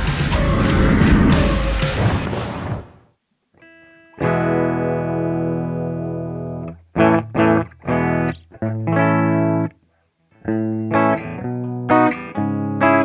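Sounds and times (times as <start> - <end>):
electric guitar chords: 0.0 - 2.2, 3.7 - 9.8, 10.4 - 13.0.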